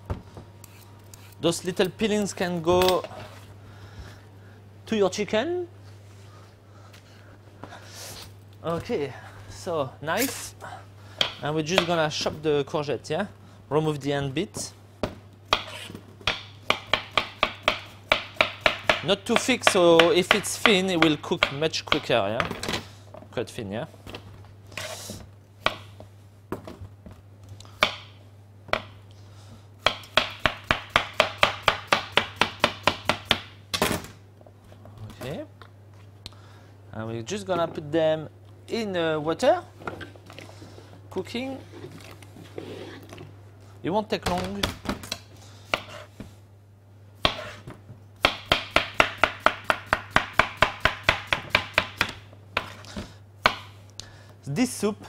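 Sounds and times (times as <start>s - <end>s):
knife chopping on board: 15.5s - 22.1s, 45.7s - 46.1s, 47.2s - 47.6s, 48.2s - 52.8s.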